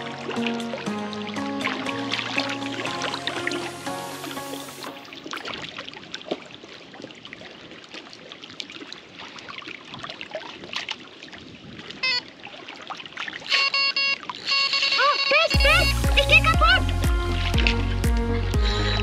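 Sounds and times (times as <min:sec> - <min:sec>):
music: 0:00.0 - 0:05.2, 0:15.5 - 0:19.0
water lapping and trickling: 0:00.0 - 0:19.0
small clicks and splashes: 0:05.2 - 0:14.5.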